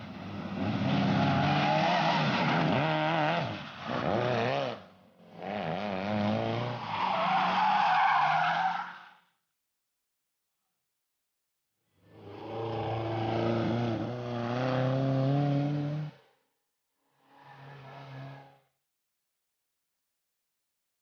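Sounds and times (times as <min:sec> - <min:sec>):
rally car engines revving: 0:00.0 - 0:08.6, 0:12.3 - 0:16.2.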